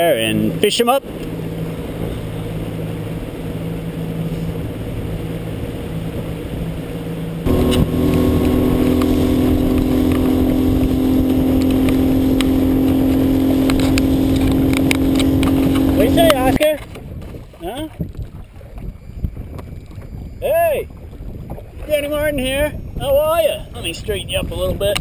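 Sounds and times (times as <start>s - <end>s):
outboard motor running: 0.0s - 25.0s
boat hull knocking on waves: 7.4s - 20.2s.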